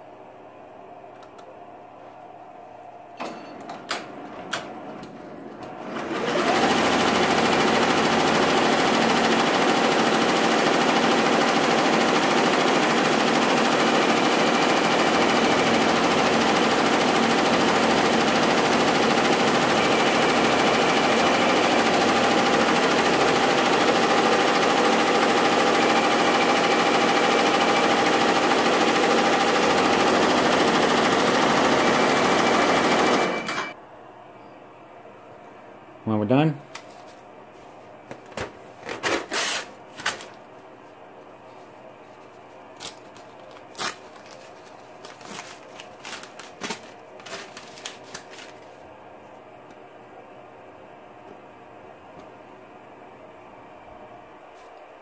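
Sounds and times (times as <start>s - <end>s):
embroidery machine whirring: 3.7s - 33.8s.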